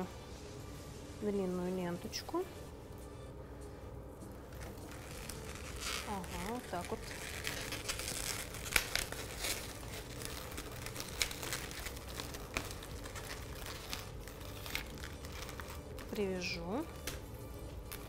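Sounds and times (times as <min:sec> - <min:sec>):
ribbon and balloons rustling: 0:04.3 - 0:18.0.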